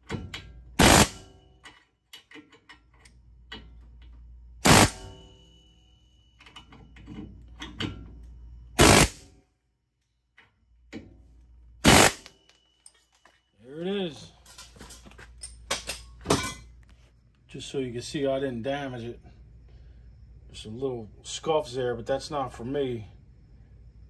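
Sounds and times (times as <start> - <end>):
pneumatic air hammer bursts: 0.8 - 1.3, 4.6 - 5.2, 8.8 - 9.3, 11.8 - 12.4
light metal clicks and taps: 1.6 - 4.2.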